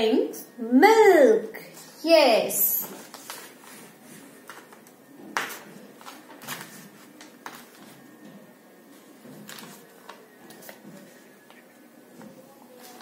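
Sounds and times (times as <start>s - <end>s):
paper crinkling: 2.9s - 8.2s, 9.3s - 11.7s.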